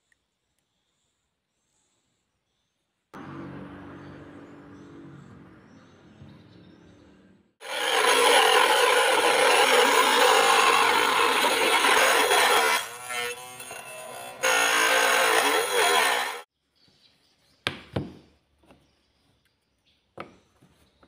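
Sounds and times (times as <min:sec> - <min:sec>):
motor whine: 0:07.6 - 0:13.0, 0:14.3 - 0:16.4
table saw cutting plastic: 0:07.6 - 0:16.5.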